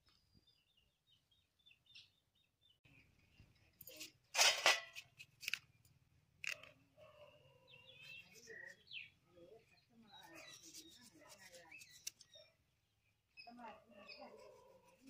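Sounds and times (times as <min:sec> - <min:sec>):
knife scraping watermelon rind: 0:10.2 - 0:12.4, 0:14.1 - 0:15.0.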